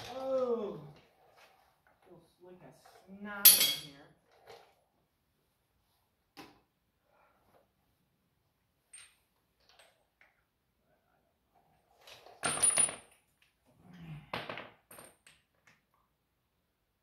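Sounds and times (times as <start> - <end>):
metal tools clinking: 3.4 - 4.0.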